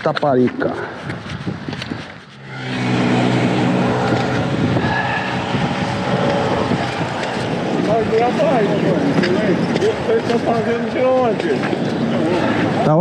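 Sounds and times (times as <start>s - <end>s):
vehicle engine running: 2.2s - 11.4s.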